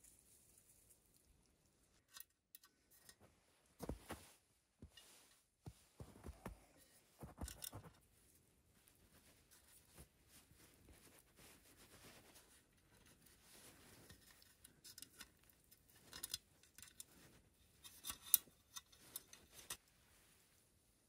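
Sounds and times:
small metal clicks and clinks: 14.1 - 17.1.

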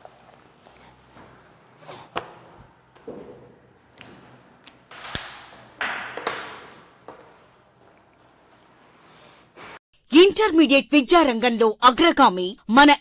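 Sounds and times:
sharp knocks and clicks: 3.0 - 7.3.

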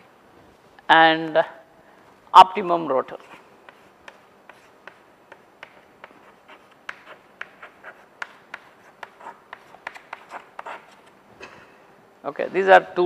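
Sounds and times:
chalk writing on a blackboard: 3.2 - 11.2.

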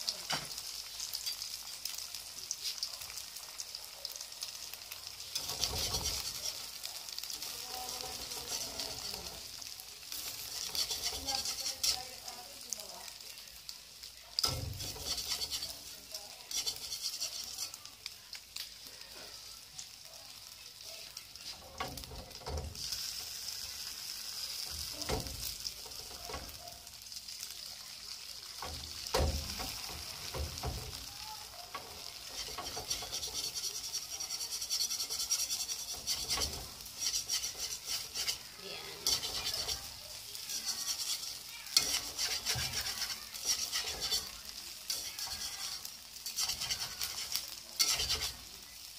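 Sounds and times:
eggs sizzling in hot oil: 0.0 - 48.9
utensil tapping and scraping pan: 5.3 - 12.2, 14.4 - 17.8, 21.4 - 22.9, 24.6 - 26.6, 28.6 - 31.1, 31.7 - 48.5.

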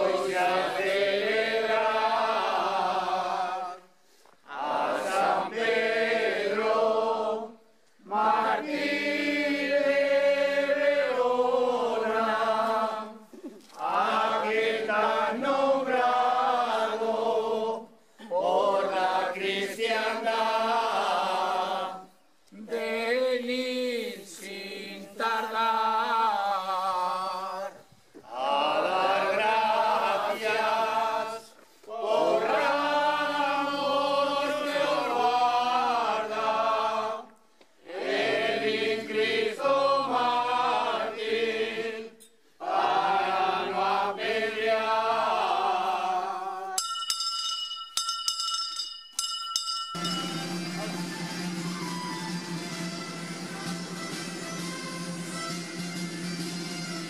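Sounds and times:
men singing unaccompanied: 0.0 - 3.9, 4.5 - 13.2, 13.8 - 37.3, 37.9 - 46.8.

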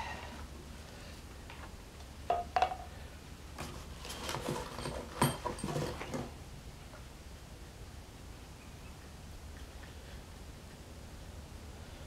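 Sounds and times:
metallic clinks of bolts and tool: 4.8 - 6.2.

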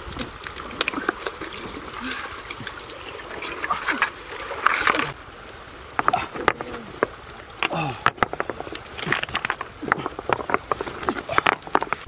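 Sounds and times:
stones knocking together: 6.0 - 12.0.

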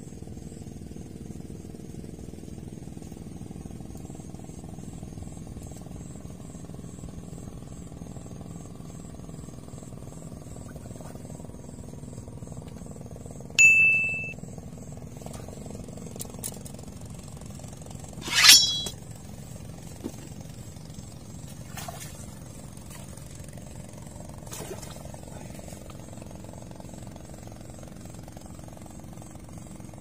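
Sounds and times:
low motor hum: 9.2 - 28.9
bite bell ringing: 13.6 - 14.3, 18.2 - 18.9.

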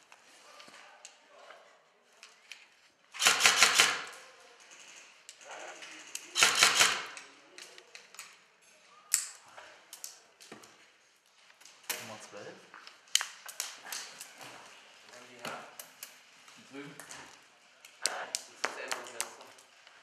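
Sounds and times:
airsoft rifle bursts: 3.2 - 4.1, 6.4 - 7.2.

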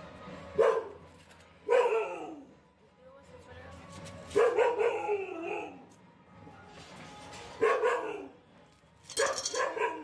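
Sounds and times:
dog barking: 0.6 - 1.0, 1.6 - 2.4, 4.3 - 5.8, 7.6 - 8.4, 9.2 - 10.0.

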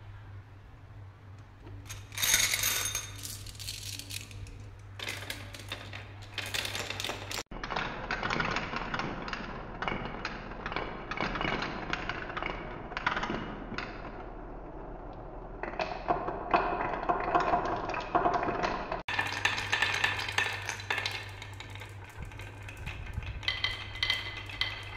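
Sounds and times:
marbles rattling on wooden track: 1.8 - 14.1, 15.7 - 24.9.

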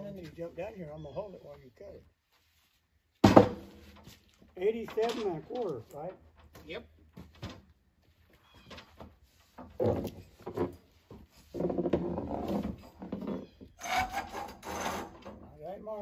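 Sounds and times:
scrape or clatter: 13.8 - 15.2.

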